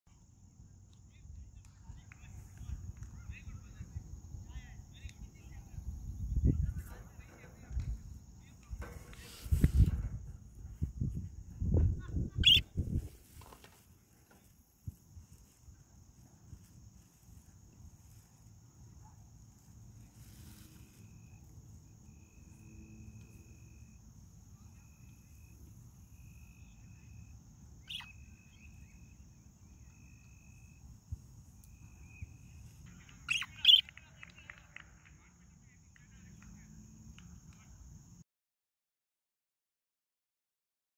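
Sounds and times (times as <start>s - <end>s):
outdoor ambience: 0.1s - 38.2s
budgerigars chirping: 12.4s - 12.7s, 27.8s - 28.2s, 33.3s - 33.8s
high-pitched insect drone: 20.3s - 31.0s.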